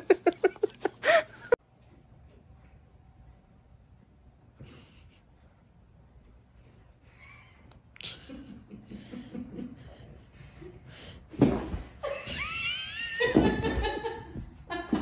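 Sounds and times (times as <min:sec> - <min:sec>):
person laughing: 0:00.0 - 0:01.6.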